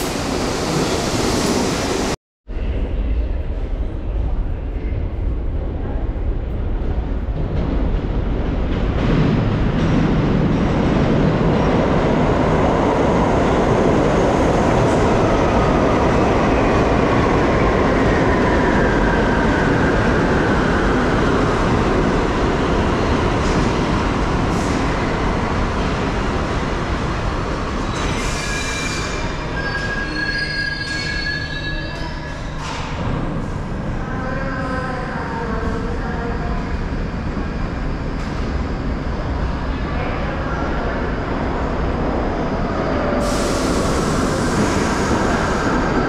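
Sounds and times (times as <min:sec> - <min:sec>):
subway train rumbling: 0:00.0 - 0:46.0
train brakes squealing: 0:27.9 - 0:32.7.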